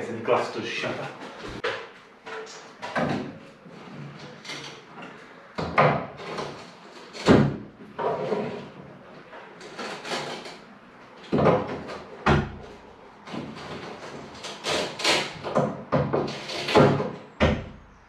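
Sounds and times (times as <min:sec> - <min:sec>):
wooden knocks and scrapes: 0:01.1 - 0:08.8.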